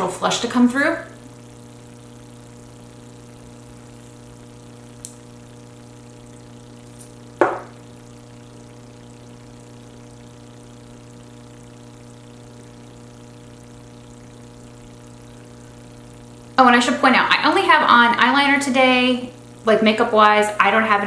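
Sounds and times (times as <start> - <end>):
steady tonal hum: 0.0 - 21.0
small click: 5.0 - 5.2
short knock: 7.4 - 7.7.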